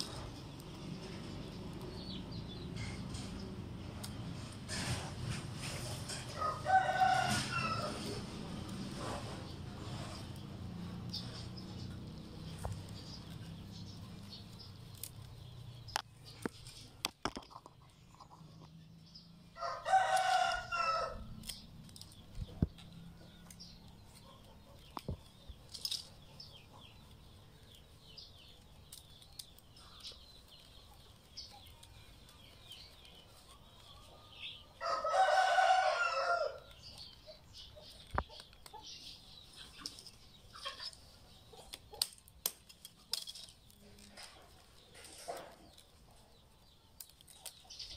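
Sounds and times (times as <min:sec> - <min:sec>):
rattan basket weaving rustles: 0:00.0 - 0:18.7, 0:19.6 - 0:47.9
rooster crowing: 0:06.3 - 0:08.2, 0:19.6 - 0:21.3, 0:34.8 - 0:36.6.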